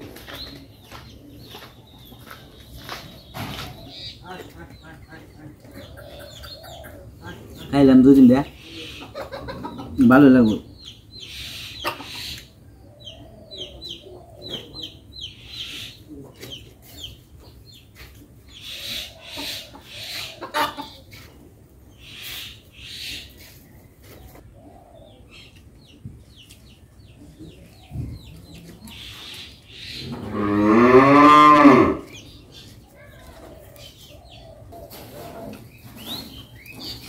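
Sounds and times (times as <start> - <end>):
chickens clucking: 0.0 - 30.5, 31.5 - 37.0
cow mooing: 30.1 - 32.1.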